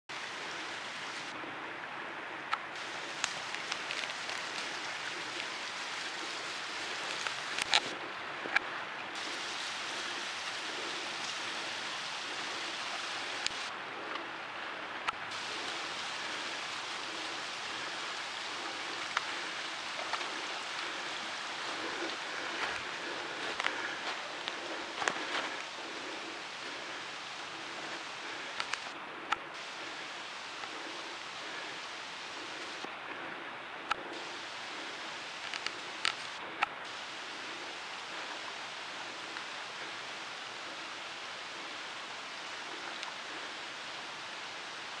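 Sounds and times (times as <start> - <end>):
stream rushing over stones: 0.1 - 1.4, 2.5 - 33.1, 33.7 - 45.0
sharp clicks and snaps: 7.1 - 7.9, 28.6 - 29.4.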